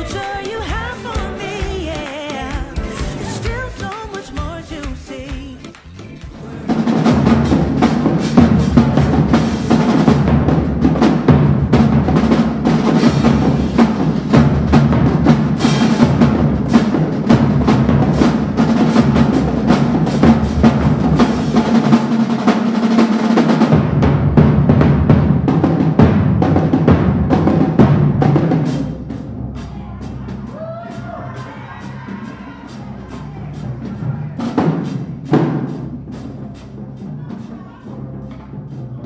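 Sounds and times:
snare and tenor drums: 0:00.0 - 0:39.0
bass drum hits: 0:06.3 - 0:22.6, 0:23.4 - 0:32.1.

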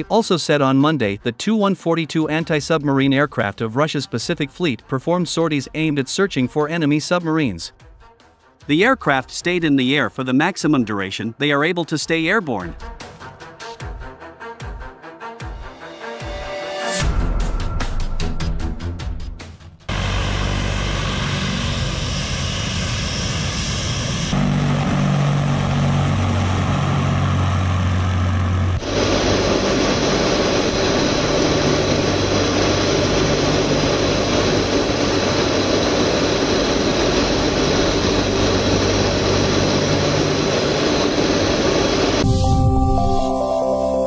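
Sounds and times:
turboprop engines droning: 0:19.9 - 0:42.6.

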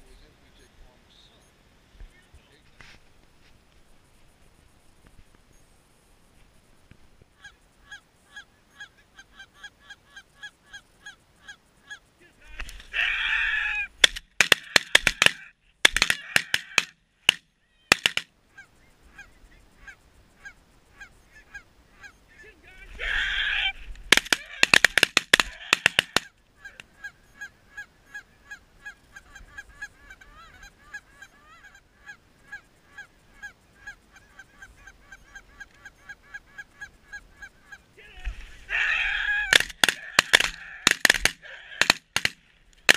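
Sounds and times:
goose sharp clucks: 0:24.1 - 0:37.9.

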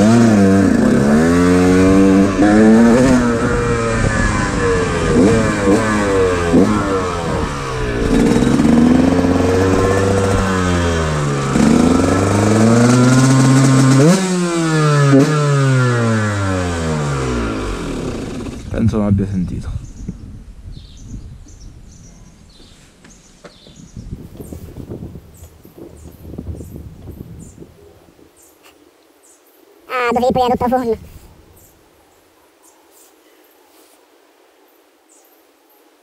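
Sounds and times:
motorcycle engine revving: 0:00.0 - 0:18.8.

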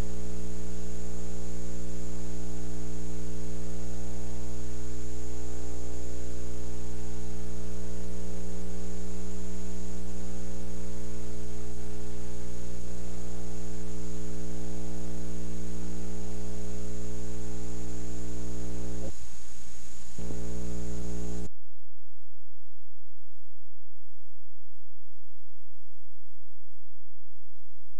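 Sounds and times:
electrical mains hum: 0:00.0 - 0:21.5.

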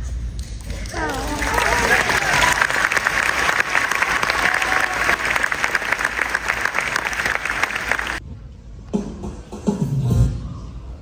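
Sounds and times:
audience applauding: 0:00.6 - 0:08.2.

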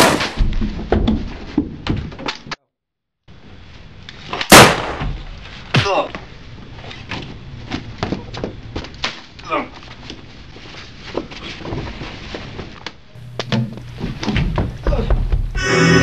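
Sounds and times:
knocks and thumps: 0:00.4 - 0:02.3, 0:13.4 - 0:15.6
loud gunshot: 0:04.5 - 0:05.2
short falling cry: 0:15.0 - 0:16.0.

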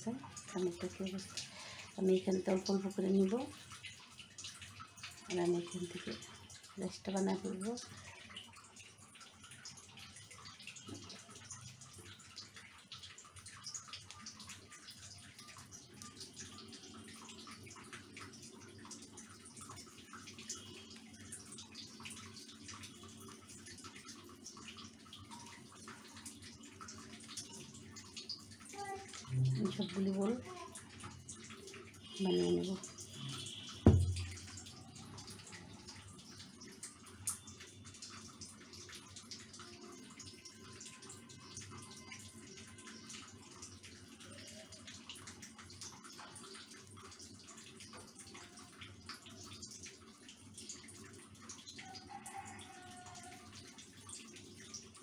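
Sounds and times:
low steady hum: 0:32.1 - 0:35.6
sharp tap: 0:33.9 - 0:34.4.

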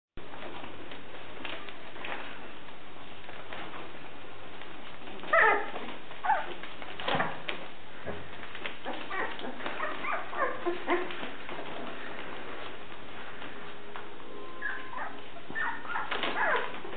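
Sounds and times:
puppies squeaking and whimpering: 0:05.2 - 0:06.6, 0:08.8 - 0:11.6, 0:14.4 - 0:16.9.

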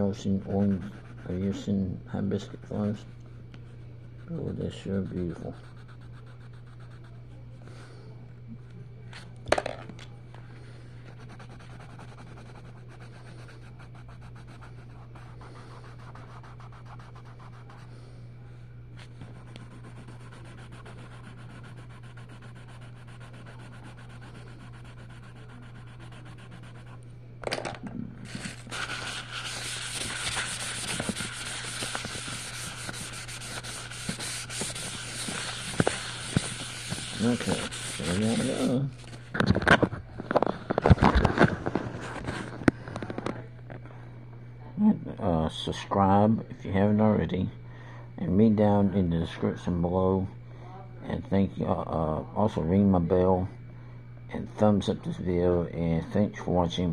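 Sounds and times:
steady low hum: 0:00.0 - 0:56.9
pencil scratching on paper: 0:00.4 - 0:01.6, 0:04.2 - 0:07.1, 0:11.2 - 0:17.9, 0:19.2 - 0:27.0, 0:28.3 - 0:38.8
rough rubbing and rustling: 0:28.3 - 0:39.2.

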